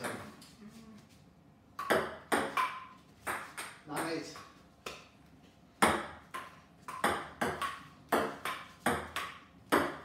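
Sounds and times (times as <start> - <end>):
ping-pong ball tapping: 1.8 - 5.0, 5.8 - 10.0.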